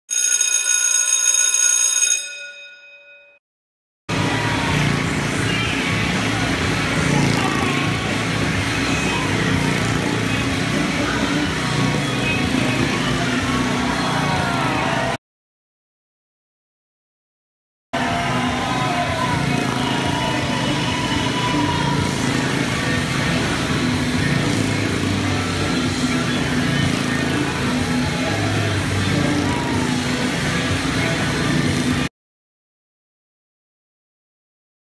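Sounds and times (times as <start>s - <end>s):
motorcycle engine revving: 4.1s - 15.2s, 18.0s - 32.1s.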